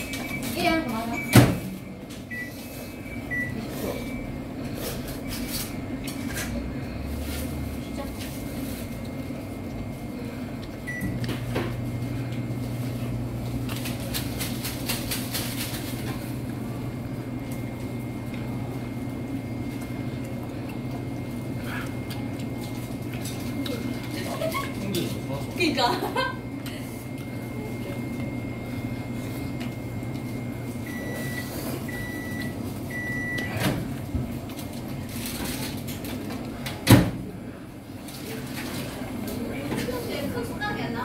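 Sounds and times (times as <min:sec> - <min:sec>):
low appliance hum: 0:00.0 - 0:41.0.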